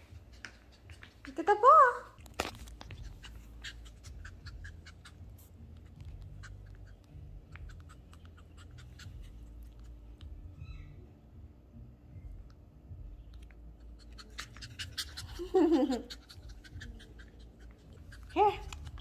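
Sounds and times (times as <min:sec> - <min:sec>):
teeth clicking on a ball: 0:02.2 - 0:10.4, 0:16.1 - 0:19.0
puppy biting a toy ball: 0:02.2 - 0:10.5, 0:13.6 - 0:19.0.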